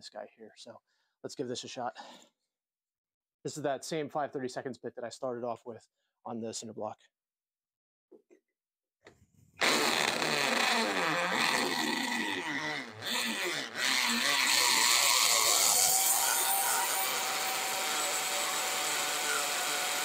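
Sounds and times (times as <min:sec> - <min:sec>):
hammer drill boring into brick: 0:11.8 - 0:20.0.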